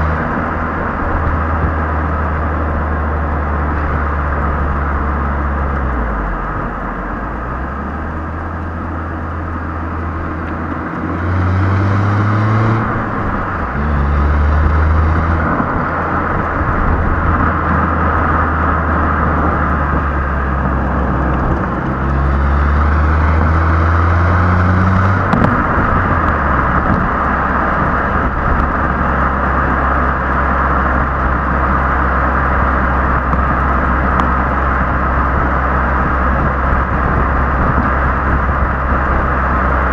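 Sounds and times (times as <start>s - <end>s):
car exhaust revving: 0.0s - 39.9s
tyre and road noise: 0.0s - 39.9s.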